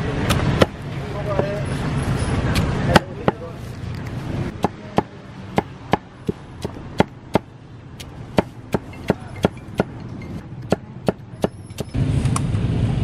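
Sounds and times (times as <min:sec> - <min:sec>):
cleaver chopping on wooden block: 0:00.3 - 0:00.8, 0:02.5 - 0:03.4, 0:04.5 - 0:10.0, 0:10.6 - 0:12.0.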